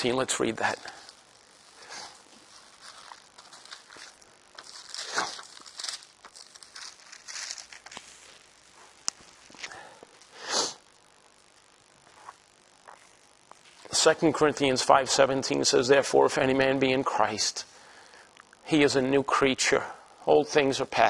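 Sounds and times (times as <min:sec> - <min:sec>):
rustling on lapel microphone: 0:00.6 - 0:09.7.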